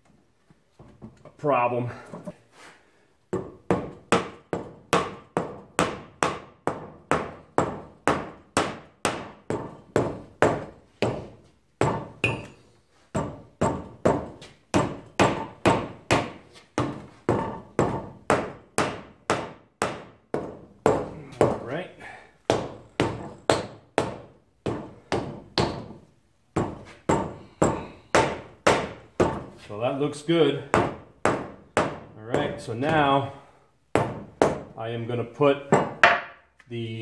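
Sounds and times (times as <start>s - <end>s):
hammer striking metal: 11.8s - 12.6s.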